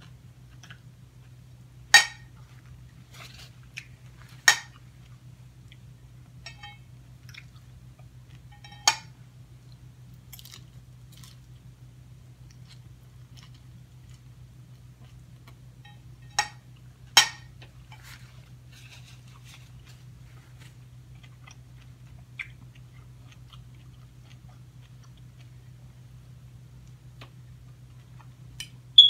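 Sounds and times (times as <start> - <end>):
steady low hum: 0.0 - 29.0
chewing salad: 2.3 - 28.8
metal fork clinking ceramic bowl: 6.5 - 6.8, 8.6 - 9.0.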